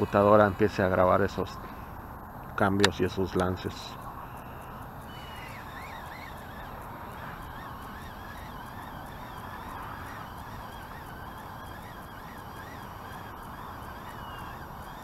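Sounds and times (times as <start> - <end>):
geese honking: 5.1 - 15.0.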